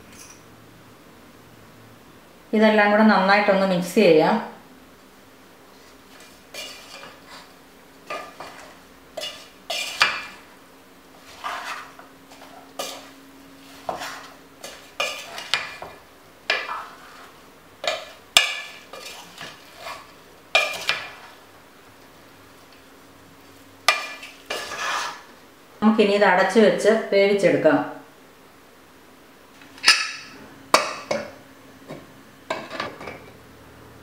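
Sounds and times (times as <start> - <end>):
wooden spatula scraping a pot: 5.7 - 10.4, 11.1 - 21.5, 23.9 - 25.3.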